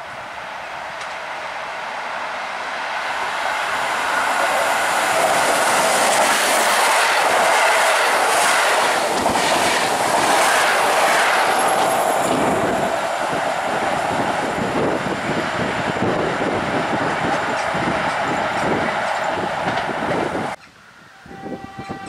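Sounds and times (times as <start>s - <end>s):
train wheels rushing on rail: 0.0s - 20.7s
wheels clickety-clack: 4.3s - 12.9s, 14.2s - 20.7s.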